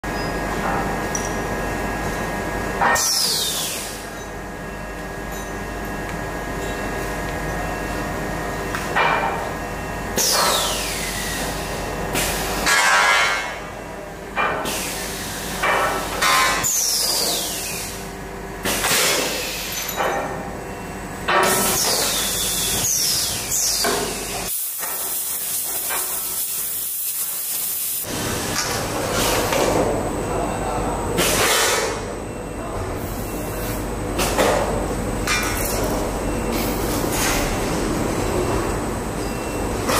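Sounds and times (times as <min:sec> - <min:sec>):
machinery humming: 0:00.1 - 0:25.6, 0:31.9 - 0:39.9
loud hiss of compressed air: 0:24.5 - 0:28.1.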